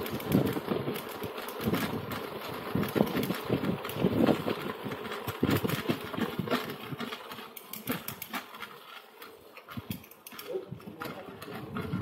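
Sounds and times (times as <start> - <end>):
bike rattling clicks and knocks: 0.0 - 12.0.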